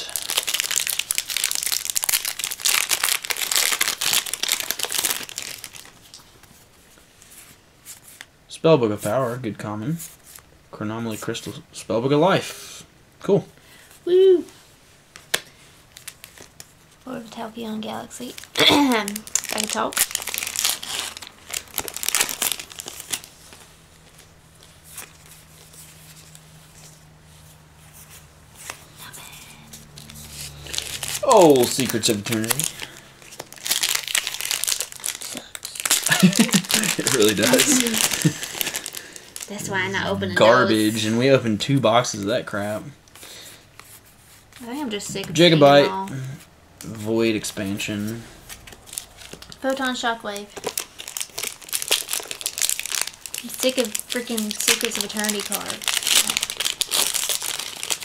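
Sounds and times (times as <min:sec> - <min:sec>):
foil wrapper crinkling: 0:00.0 - 0:06.5, 0:15.8 - 0:17.1, 0:18.1 - 0:27.0, 0:29.9 - 0:39.7, 0:48.4 - 0:58.0.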